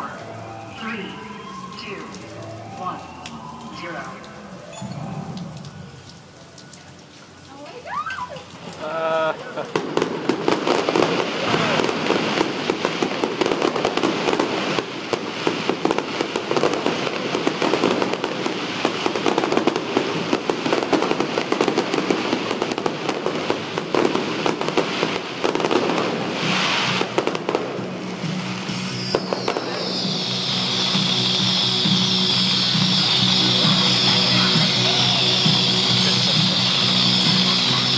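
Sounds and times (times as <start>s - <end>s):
music: 0.0s - 6.3s, 26.0s - 37.9s
fireworks bangs and crackles: 9.4s - 37.9s.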